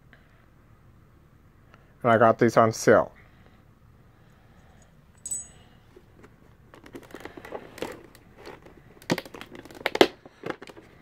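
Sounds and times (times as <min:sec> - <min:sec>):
metal adapters clinking: 0:05.2 - 0:05.8
plastic blister pack crackling: 0:06.7 - 0:11.0.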